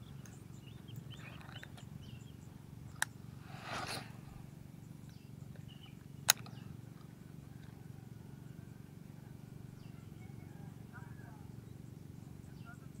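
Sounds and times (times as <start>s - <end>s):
fishing rod swish: 3.5s - 4.2s
sharp click: 6.2s - 6.6s.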